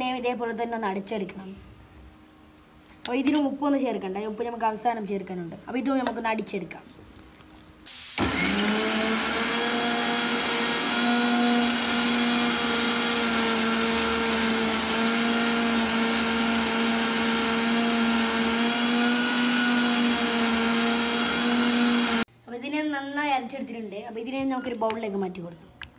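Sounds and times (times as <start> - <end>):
mixer grinder motor running: 8.1 - 22.3.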